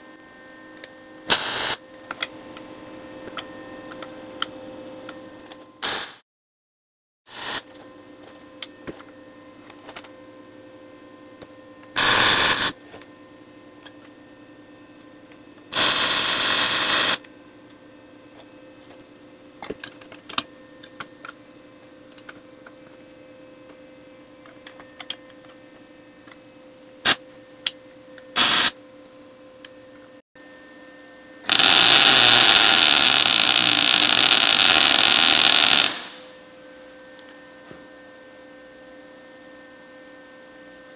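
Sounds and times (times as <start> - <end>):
welding crackle: 1.3 - 1.8, 12.0 - 12.7, 15.7 - 17.2, 28.4 - 28.7, 31.5 - 36.3.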